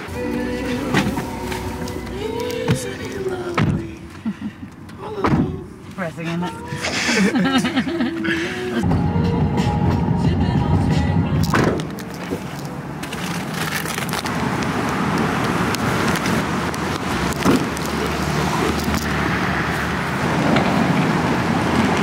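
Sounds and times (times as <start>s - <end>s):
road traffic noise: 0.0s - 22.0s
clicks and crackles: 11.4s - 19.2s.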